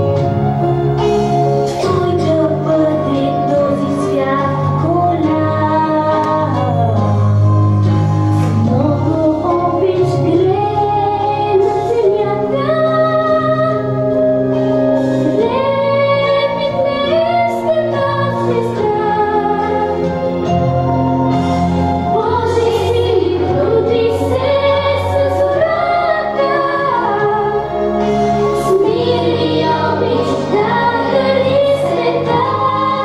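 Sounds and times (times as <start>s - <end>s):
musical accompaniment: 0.0s - 33.0s.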